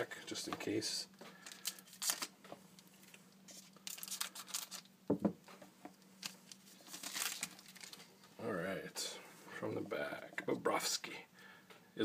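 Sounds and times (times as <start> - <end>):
faint steady hum: 0.0 - 12.0
cards and foil wrappers crinkling: 1.3 - 5.0, 5.9 - 8.3.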